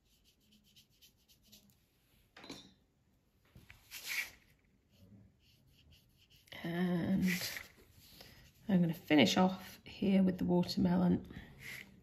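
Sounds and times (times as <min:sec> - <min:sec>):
paintbrush strokes on paper: 0:00.0 - 0:02.0, 0:03.8 - 0:09.8.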